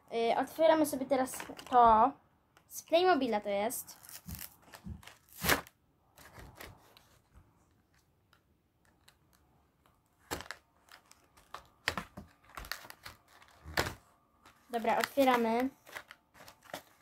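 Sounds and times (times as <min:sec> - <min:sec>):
plastic packaging crinkling: 0:03.9 - 0:07.1, 0:08.8 - 0:17.0.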